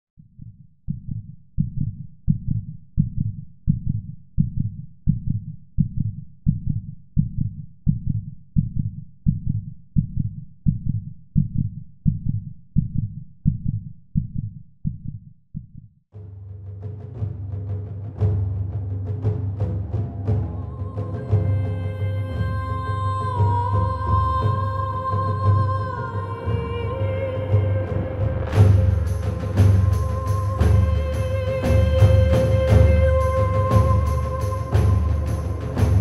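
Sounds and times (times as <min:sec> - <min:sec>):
heartbeat double thump: 0:00.2 - 0:15.9.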